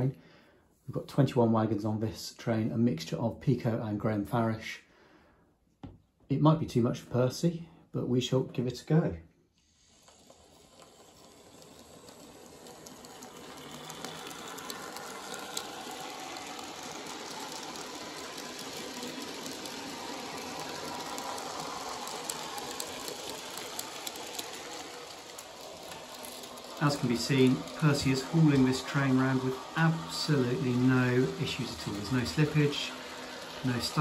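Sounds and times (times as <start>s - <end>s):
model train whirring: 8.2s - 34.0s
wheels clicking on track: 9.8s - 34.0s.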